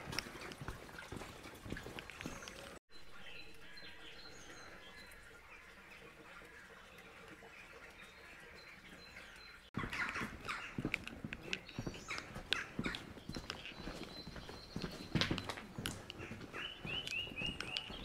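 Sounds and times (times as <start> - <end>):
footsteps on wet lane: 0.0 - 2.8, 9.8 - 18.0
faint birds chirping: 0.0 - 18.0.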